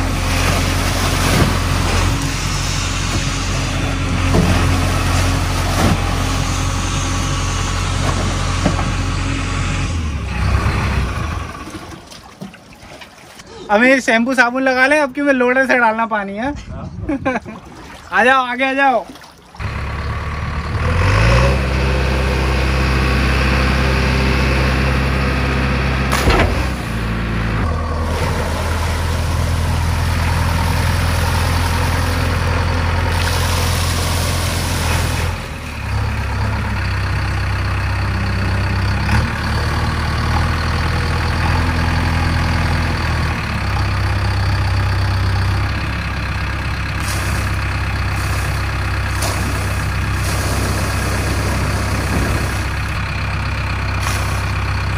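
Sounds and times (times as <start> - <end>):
water pouring and splashing: 0.0 - 3.5, 11.5 - 13.5, 17.4 - 19.6, 28.0 - 32.3, 33.0 - 35.5, 47.0 - 52.8, 54.0 - 54.6
diesel engine under hydraulic load: 0.0 - 12.1, 19.6 - 54.9.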